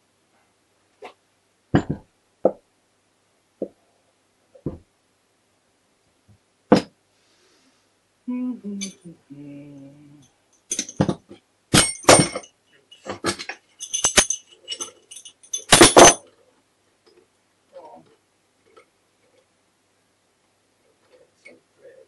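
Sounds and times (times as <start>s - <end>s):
metal gear parts knocking: 10.7s - 16.2s.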